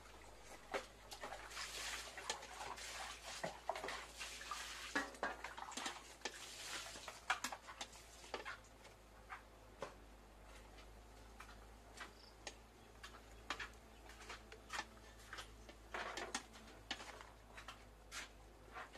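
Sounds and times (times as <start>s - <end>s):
boiling broth splashing hiss: 1.1s - 8.4s.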